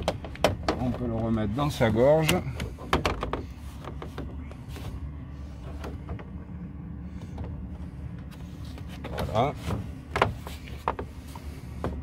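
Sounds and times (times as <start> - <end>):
low rumble: 0.0 - 12.0
handling knocks: 8.9 - 12.0.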